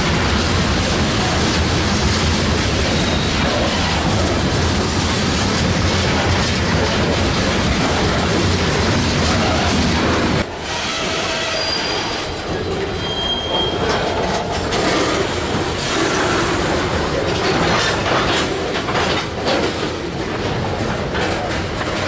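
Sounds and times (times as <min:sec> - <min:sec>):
deep freight train rumble: 0:00.0 - 0:22.0
train wheels clacking over joints: 0:00.0 - 0:22.0
high wheel squeals: 0:02.9 - 0:03.4, 0:10.6 - 0:14.2.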